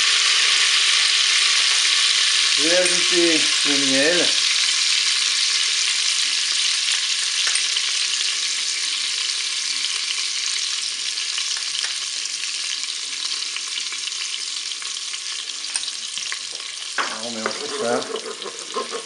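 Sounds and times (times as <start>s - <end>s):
liquid sizzling and bubbling: 0.0s - 19.0s
spoon stirring: 17.2s - 19.0s.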